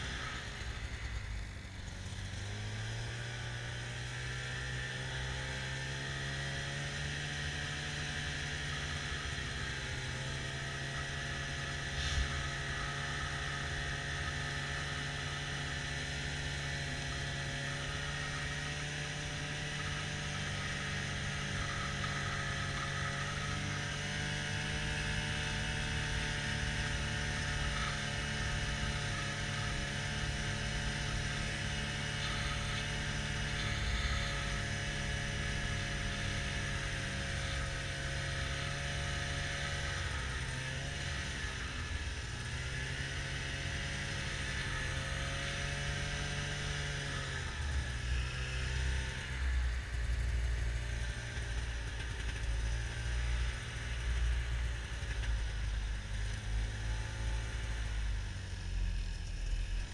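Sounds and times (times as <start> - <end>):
snowmobile engine droning: 0.0 - 59.9.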